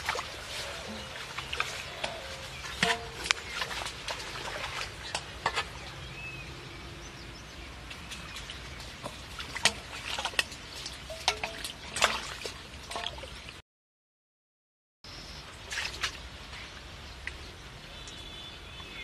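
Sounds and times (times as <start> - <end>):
bowls splashing muddy water: 0.0 - 6.2, 7.8 - 13.6, 15.6 - 17.4
bowls scraping: 0.5 - 3.8.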